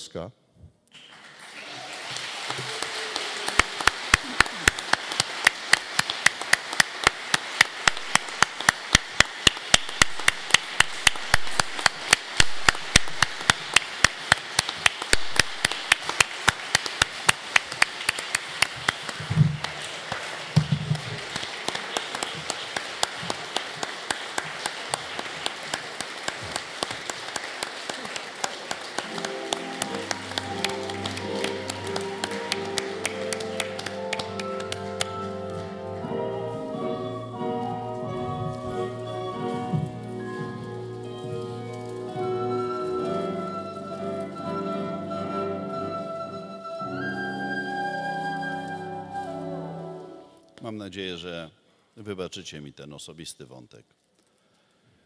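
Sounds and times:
audience applauding: 0.9 - 44.8
sharp closely spaced claps: 3.5 - 20.6.

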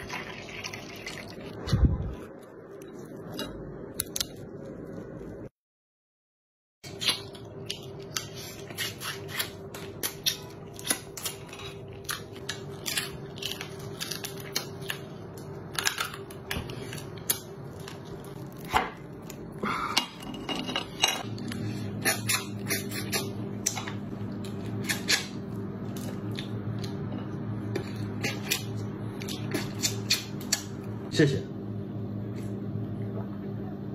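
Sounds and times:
low steady hum: 0.0 - 5.5, 6.8 - 33.9
crab shell cracking and crunching: 6.9 - 19.5.

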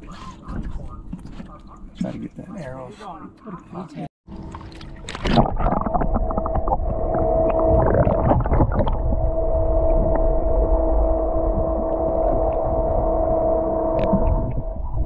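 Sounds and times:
water splashing and bubbling: 4.3 - 10.8
steady hum: 4.3 - 15.0.

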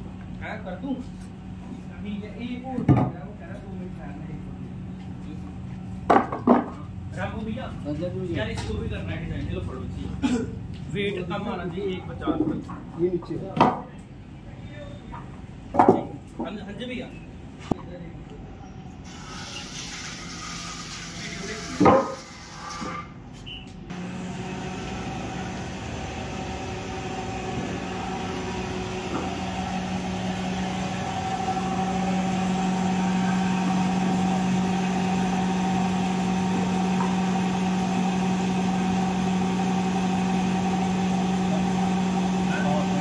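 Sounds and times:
wood planer humming: 19.0 - 23.1, 23.9 - 43.0.

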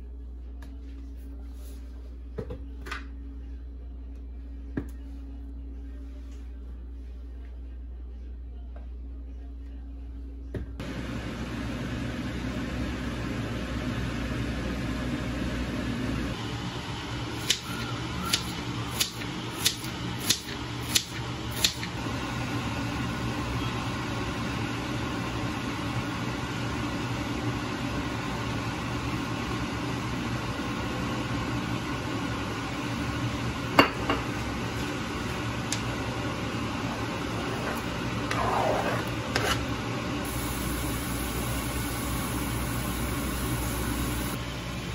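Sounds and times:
kitchen hum: 10.4 - 44.9
gas stove igniter clicking: 18.3 - 21.9.

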